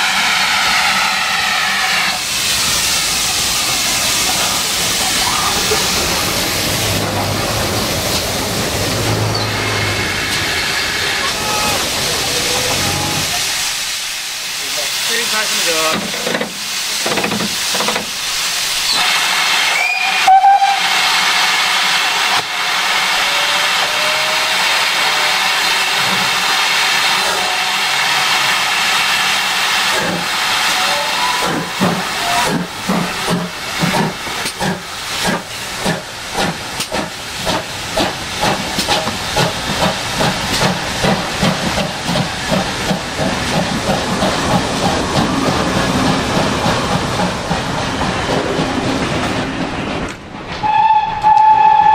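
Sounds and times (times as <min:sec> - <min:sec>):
steam hissing: 0:00.0 - 0:49.4
steam whistle: 0:18.9 - 0:21.4, 0:27.2 - 0:28.1, 0:50.6 - 0:51.9.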